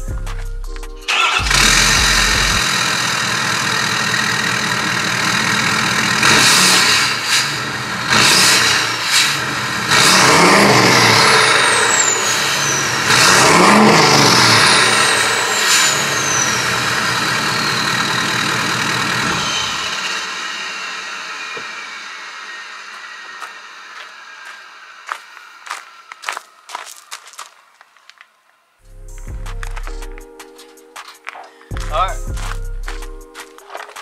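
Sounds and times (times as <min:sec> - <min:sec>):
diesel truck engine revving: 0:00.1 - 0:26.8.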